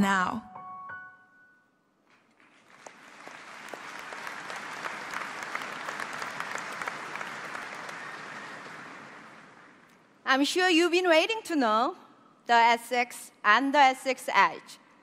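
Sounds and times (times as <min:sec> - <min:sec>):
large audience applauding: 0:02.4 - 0:09.9.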